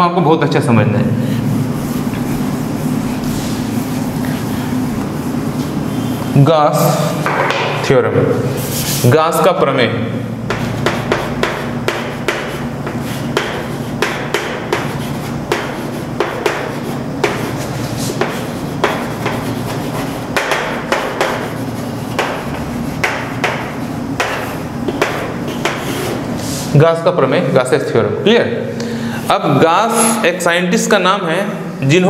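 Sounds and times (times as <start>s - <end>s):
steady low hum: 0.0s - 32.0s
chalk writing on a chalkboard: 8.5s - 9.2s, 10.4s - 26.7s.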